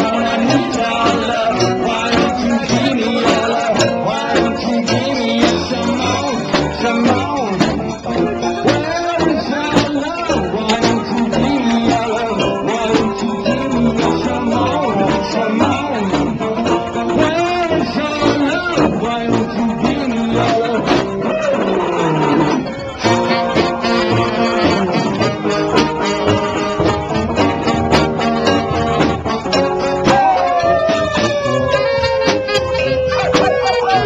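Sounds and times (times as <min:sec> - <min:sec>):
sousaphone bass line: 0:00.0 - 0:34.0
saxophone: 0:20.4 - 0:34.0.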